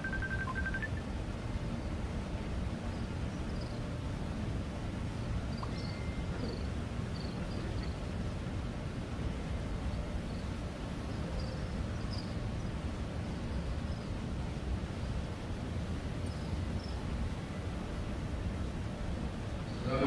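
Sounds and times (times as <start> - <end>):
faint high bird chirps: 0.0 - 1.0, 5.6 - 6.6.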